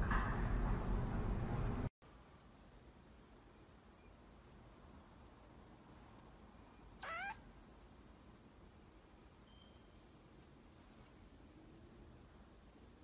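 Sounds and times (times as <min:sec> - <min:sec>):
baby marmoset calls: 0:02.0 - 0:02.5, 0:05.9 - 0:06.3, 0:07.0 - 0:07.4, 0:10.7 - 0:11.2.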